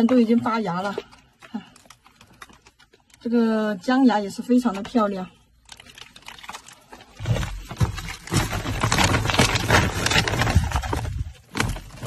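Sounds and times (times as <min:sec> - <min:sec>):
plastic sack rustling: 0:05.6 - 0:12.0.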